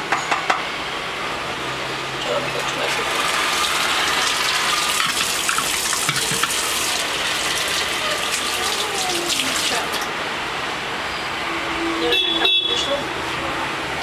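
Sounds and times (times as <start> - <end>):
tap water running into sink: 2.6 - 10.1
utensil rinsed under water: 2.8 - 10.1.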